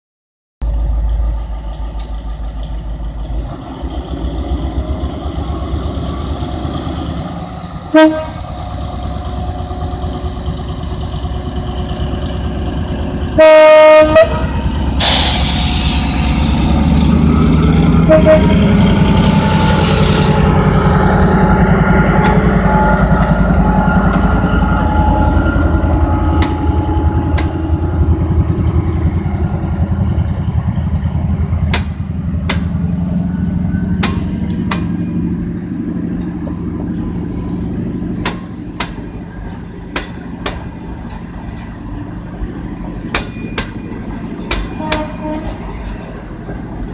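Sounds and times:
locomotive engine running: 0.6s - 46.9s
locomotive horn blast: 7.9s - 8.6s, 13.3s - 15.4s, 17.9s - 28.2s, 44.6s - 45.8s.

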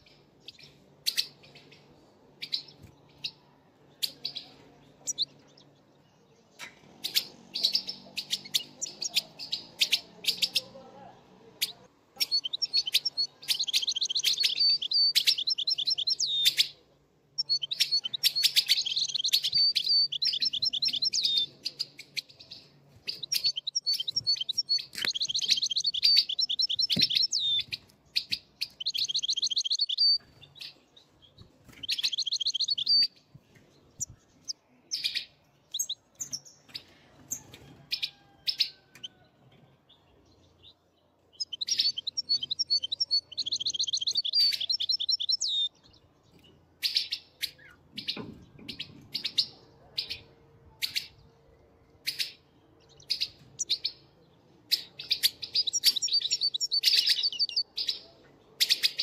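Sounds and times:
finches twittering song: 11.6s - 36.9s, 40.1s - 49.5s, 54.7s - 58.1s.

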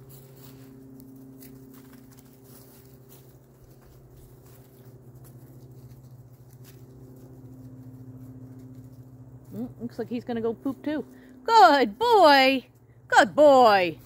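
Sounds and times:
feet through dry leaves: 0.0s - 9.6s
steady low hum: 0.0s - 14.0s.

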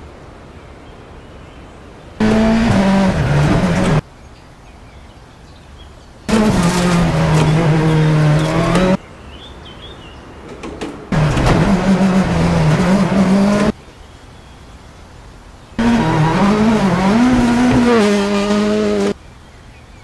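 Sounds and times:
car engine revving: 2.2s - 4.0s, 6.3s - 9.0s, 11.1s - 13.8s, 15.8s - 19.2s.

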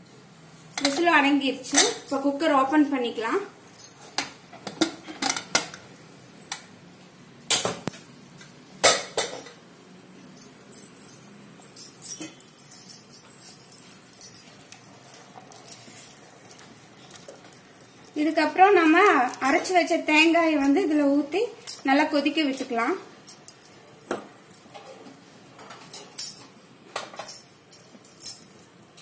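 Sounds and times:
spoon stirring in a pot: 14.0s - 21.2s.

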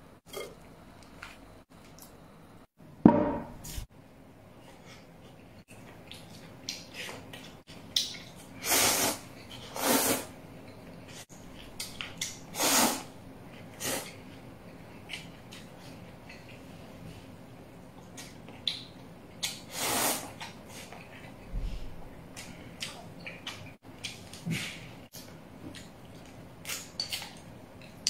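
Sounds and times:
heavy thump: 3.1s - 3.6s.

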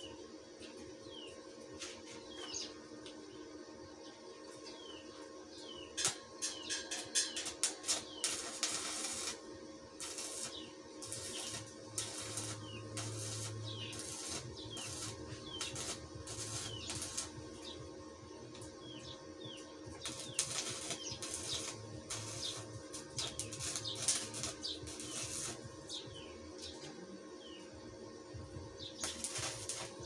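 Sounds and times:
welding arc crackling: 6.0s - 26.2s, 28.9s - 30.0s
welding machine hum: 6.0s - 26.8s, 28.3s - 30.0s.

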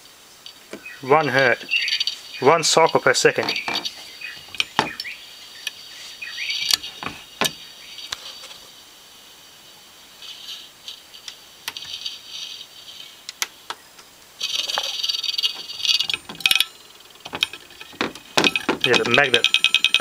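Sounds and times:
high-pitched buzzing rattle: 1.6s - 5.1s, 6.5s - 7.6s, 14.4s - 20.0s.

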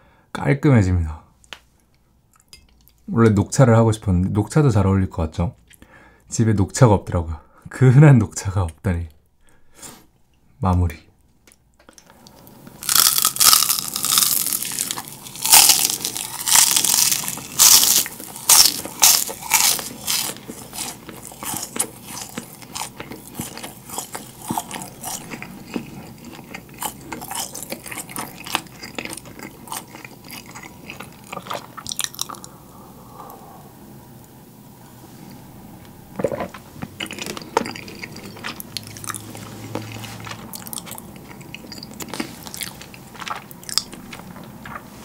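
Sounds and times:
crunching rice cracker: 12.8s - 32.4s.

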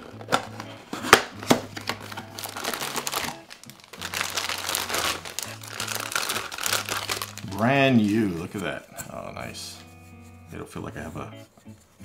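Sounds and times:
packaging crinkling and rustling: 0.0s - 8.8s.

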